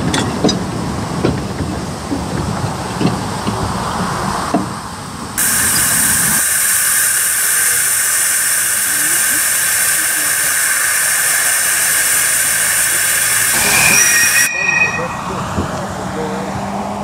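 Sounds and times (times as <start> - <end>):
steam hissing from safety valve: 5.4 - 15.8.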